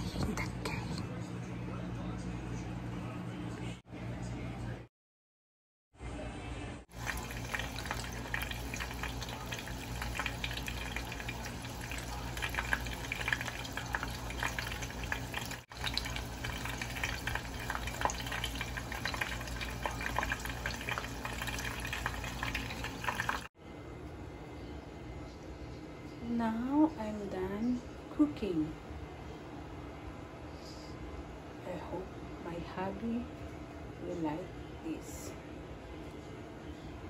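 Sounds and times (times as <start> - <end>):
oil sizzling and crackling: 6.9 - 23.5.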